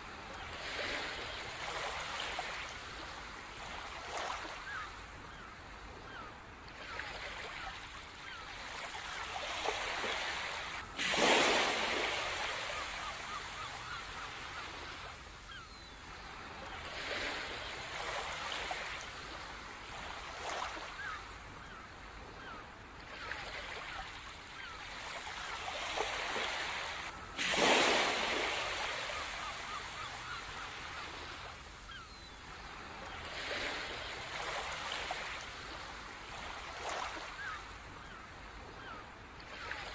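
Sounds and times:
big waves breaking: 9.5s - 13.4s, 26.1s - 31.6s
surf washing onto beach: 11.0s - 13.4s.

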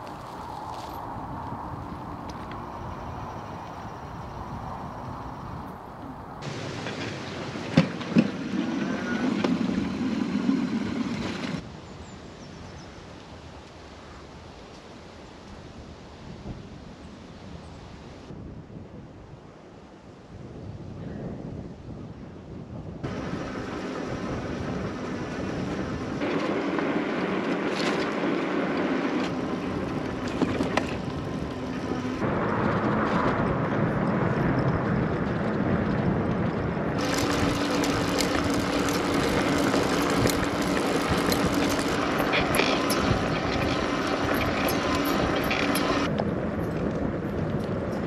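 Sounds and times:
tyres rolling on road: 0.0s - 11.6s, 23.1s - 48.0s
wind on microphone: 0.0s - 14.6s, 15.2s - 48.0s
electric motor hum: 37.0s - 46.1s.

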